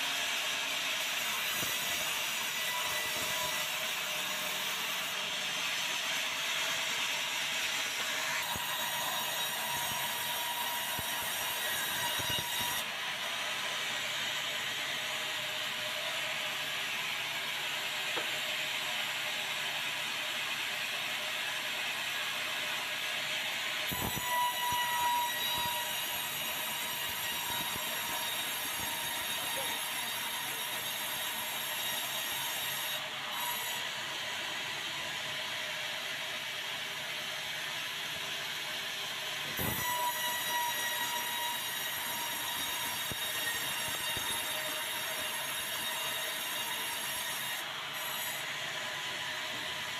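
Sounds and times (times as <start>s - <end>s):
high ringing whine: 23.9s - 32.5s, 39.6s - 47.3s.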